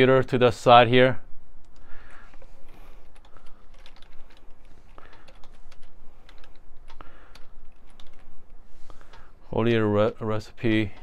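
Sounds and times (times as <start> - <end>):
computer keyboard typing: 3.0 - 8.4.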